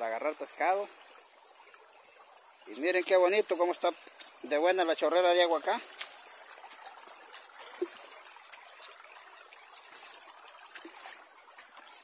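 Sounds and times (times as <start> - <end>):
river water over rocks: 0.0 - 12.0.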